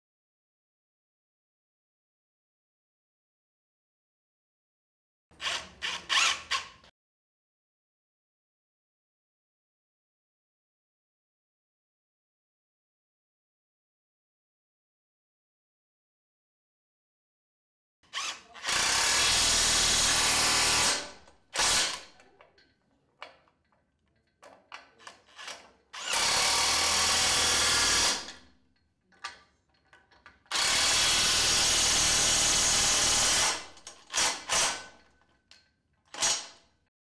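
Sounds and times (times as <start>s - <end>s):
cordless impact wrench running: 5.4s - 6.8s, 18.1s - 22.1s, 25.3s - 28.4s, 30.5s - 35.1s.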